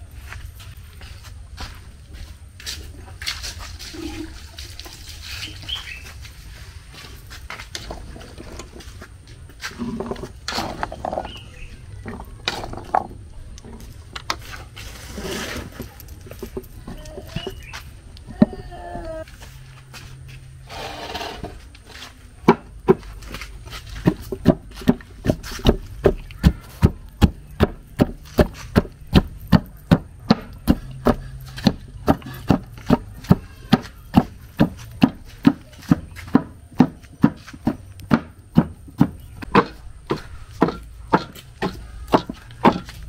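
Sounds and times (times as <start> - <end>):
wooden pestle pounding in mortar: 22.4 - 23.2, 24.0 - 43.0.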